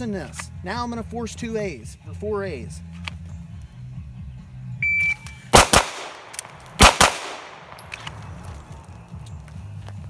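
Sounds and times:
pistol shots: 0:05.5 - 0:08.2.

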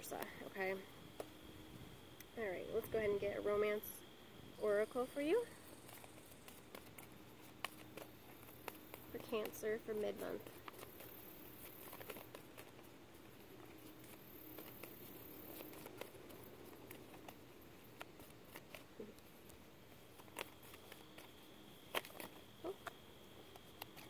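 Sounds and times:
cards being shuffled: 0:05.8 - 0:24.0.

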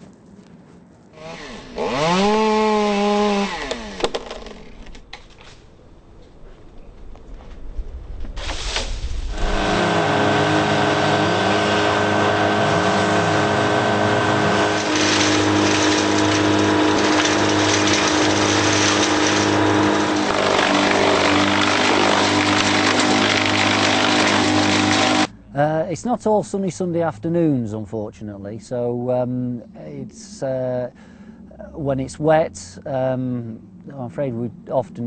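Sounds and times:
wood being chipped: 0:01.2 - 0:05.2, 0:09.4 - 0:25.3
wood chipper engine running: 0:01.2 - 0:05.5, 0:09.3 - 0:25.4.

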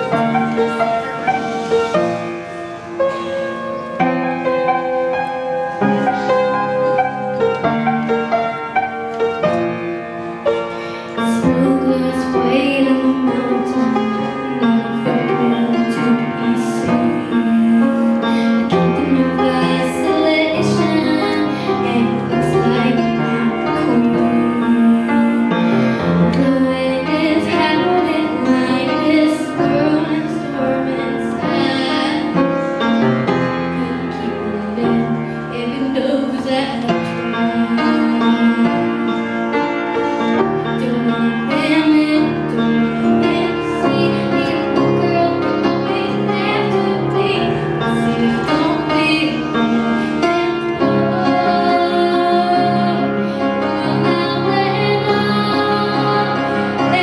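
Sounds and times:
upright piano: 0:00.0 - 0:57.0
girl singing into a microphone: 0:10.7 - 0:39.2, 0:40.6 - 0:57.0.

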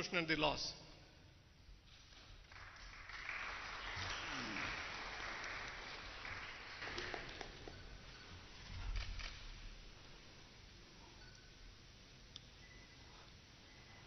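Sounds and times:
small audience applauding: 0:01.9 - 0:08.2.

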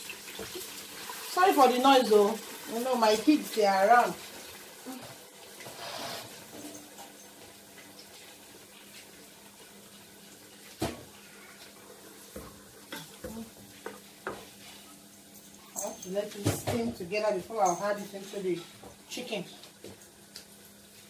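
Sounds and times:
pot steaming hiss: 0:00.0 - 0:06.7.

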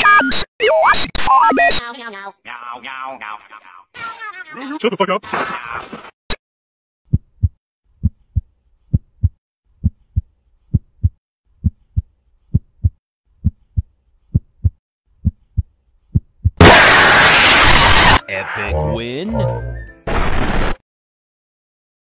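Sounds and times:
heartbeat thumps: 0:07.1 - 0:16.6
loud harsh noise blast: 0:16.6 - 0:18.2.

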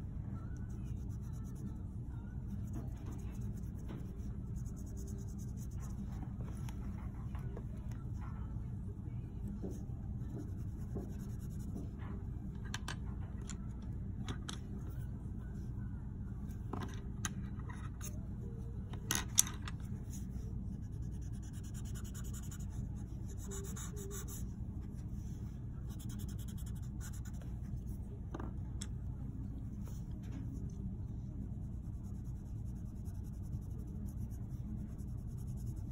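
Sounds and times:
steady low hum: 0:00.0 - 0:35.9
pencil scratching on paper: 0:00.9 - 0:07.1, 0:20.0 - 0:25.1, 0:25.9 - 0:28.0, 0:31.6 - 0:35.9.

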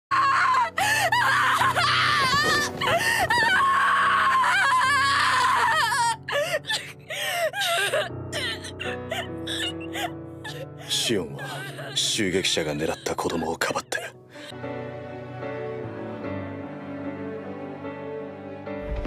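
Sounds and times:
wailing and sobbing voices: 0:00.1 - 0:13.1
mournful background music: 0:00.1 - 0:19.0.

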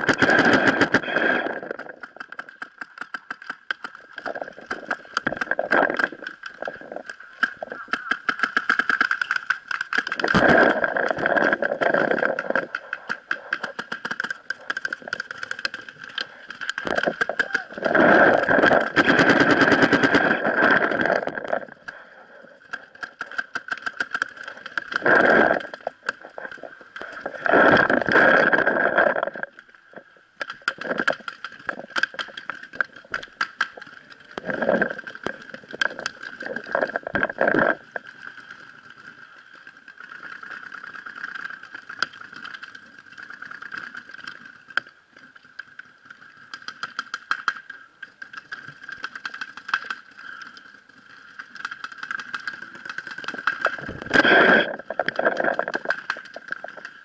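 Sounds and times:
paintball markers firing: 0:07.4 - 0:10.7.

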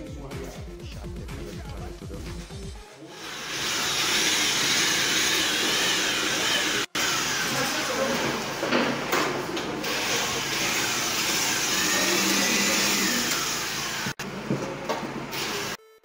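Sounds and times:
electric air blower whining: 0:03.1 - 0:14.2.

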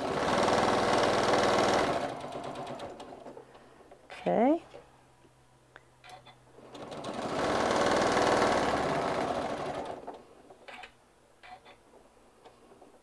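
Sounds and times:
sewing machine stitching: 0:00.0 - 0:03.4, 0:06.6 - 0:10.8.

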